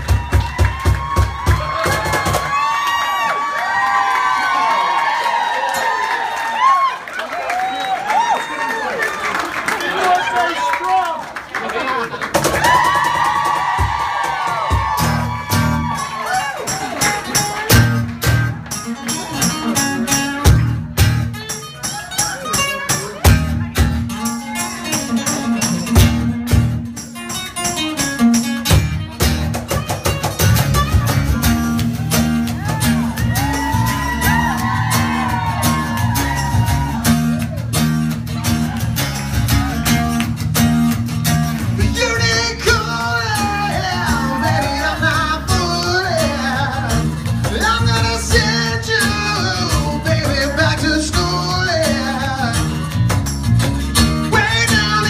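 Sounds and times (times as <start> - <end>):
strummed acoustic guitars: 12.3 - 55.0
person singing: 41.8 - 53.2, 54.2 - 55.0.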